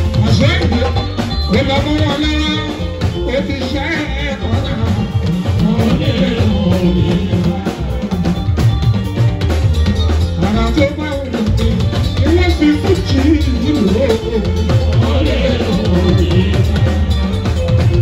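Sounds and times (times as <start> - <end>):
man singing: 0.0 - 8.8, 10.3 - 18.0
live band playing: 0.0 - 18.0.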